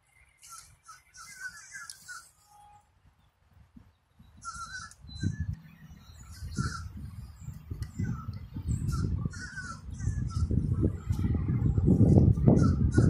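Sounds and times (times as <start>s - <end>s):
crows cawing: 4.4s - 5.0s, 6.3s - 6.9s, 9.3s - 10.5s.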